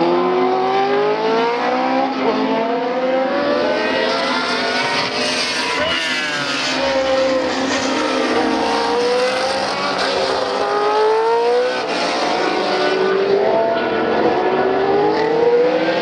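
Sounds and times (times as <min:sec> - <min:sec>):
racing car engine passing: 0:00.1 - 0:16.0.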